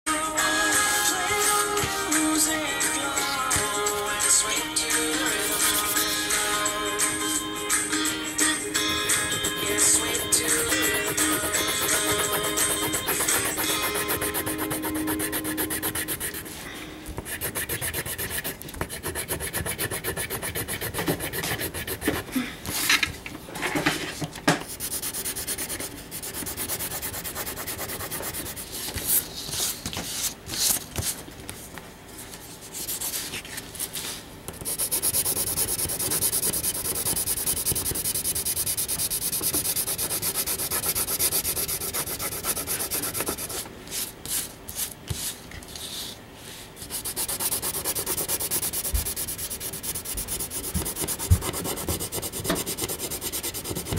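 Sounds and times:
pencil shading on paper: 9.4 - 16.6, 17.2 - 22.2, 24.8 - 28.6, 34.6 - 43.6, 46.8 - 53.9.

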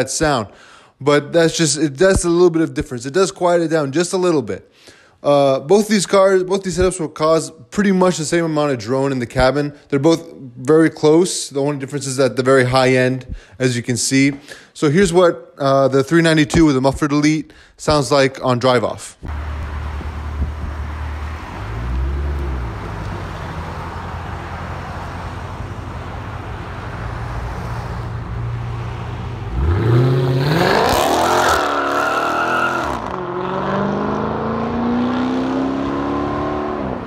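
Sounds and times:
engine revving: 19.3 - 25.2, 28.4 - 37.0
car engine idling: 19.3 - 29.6
car accelerating away: 19.3 - 37.0.

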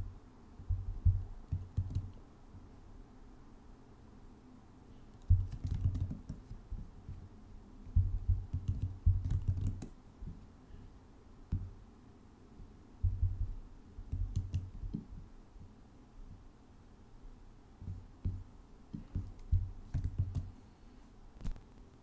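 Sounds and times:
computer keyboard typing: 1.5 - 2.2, 5.2 - 6.5, 8.3 - 9.9, 14.1 - 15.0, 19.0 - 20.5.

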